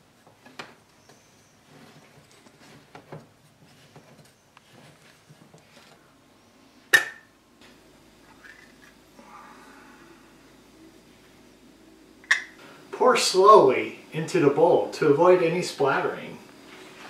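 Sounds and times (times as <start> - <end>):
sharp metallic snap: 6.9 - 7.2.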